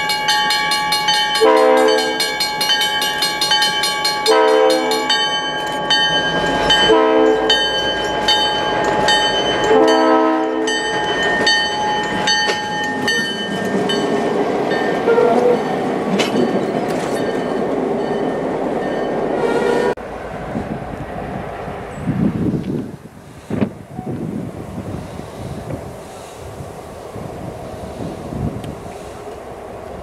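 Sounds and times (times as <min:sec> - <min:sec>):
locomotive bell ringing: 0:00.0 - 0:19.9
diesel locomotive engine: 0:00.0 - 0:30.0
train wheels on rails: 0:00.0 - 0:30.0
locomotive horn blast: 0:01.4 - 0:02.3, 0:04.2 - 0:05.2, 0:06.8 - 0:07.6, 0:09.7 - 0:10.8, 0:15.0 - 0:15.6, 0:19.4 - 0:20.0.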